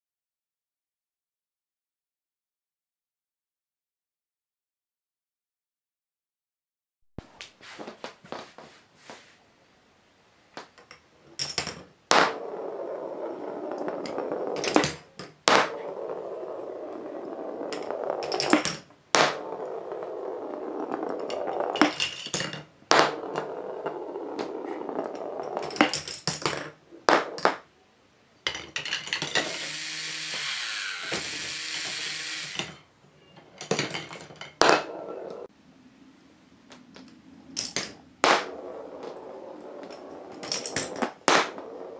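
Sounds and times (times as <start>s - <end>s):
balls rolling along plastic tracks: 10.6s - 27.6s, 28.5s - 32.8s, 37.0s - 41.9s
plastic balls clacking: 13.1s - 27.7s, 28.5s - 29.6s, 37.0s - 41.8s.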